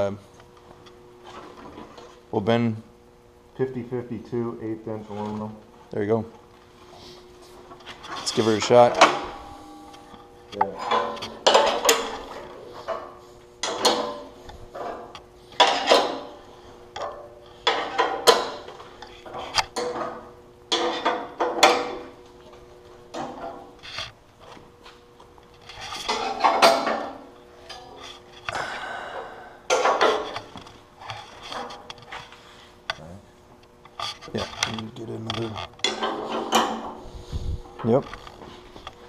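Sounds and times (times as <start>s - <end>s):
hydraulic jack humming: 7.6s - 22.2s.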